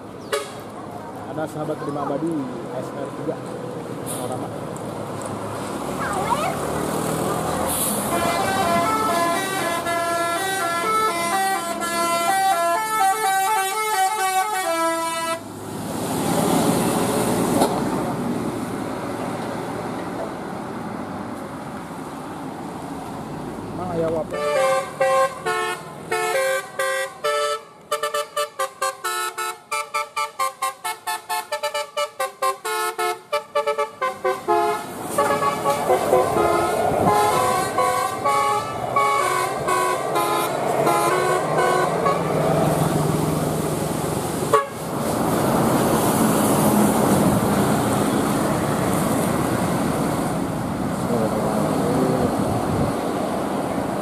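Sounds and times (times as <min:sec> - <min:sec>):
bus engine and road noise: 0:00.0 - 0:54.0
musical air horns: 0:07.8 - 0:15.4, 0:24.4 - 0:42.3, 0:44.5 - 0:44.8.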